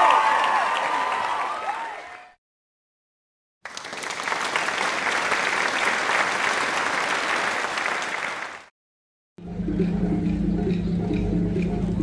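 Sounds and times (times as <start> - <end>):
large crowd applauding: 0.0 - 2.4, 3.6 - 8.7.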